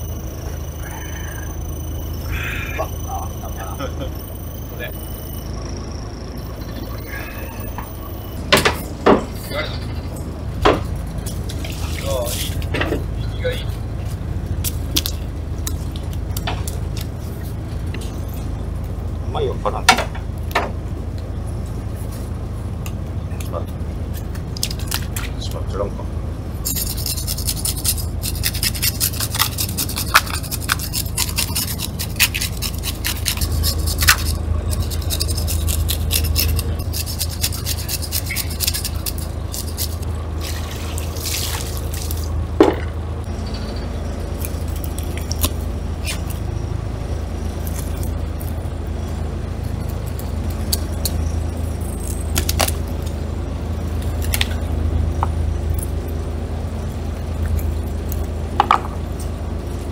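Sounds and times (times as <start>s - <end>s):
diesel engine hum: 0.0s - 59.9s
fish scaler scraping scales: 26.6s - 42.3s
water poured from bucket: 40.4s - 42.2s.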